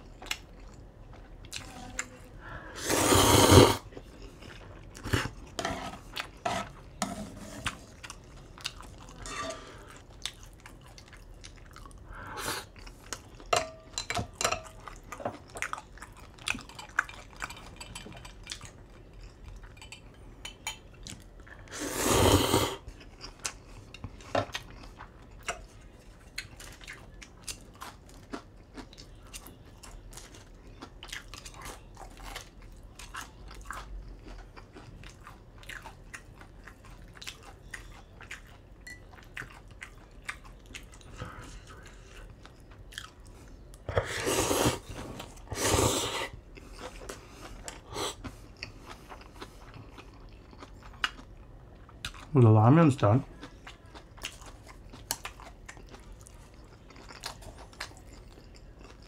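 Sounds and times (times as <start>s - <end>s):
chewing: 0.0s - 2.3s, 3.8s - 7.0s, 7.7s - 21.7s, 22.8s - 52.4s, 53.2s - 59.0s
slurping noodles: 2.7s - 3.9s, 21.7s - 22.9s, 43.9s - 46.4s.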